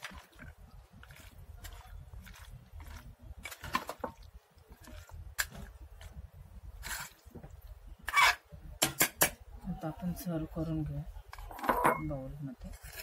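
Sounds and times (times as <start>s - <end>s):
wet squelching of stirred salad: 0.0s - 7.9s
spoon scraping steel bowl: 6.8s - 7.2s, 11.4s - 13.0s.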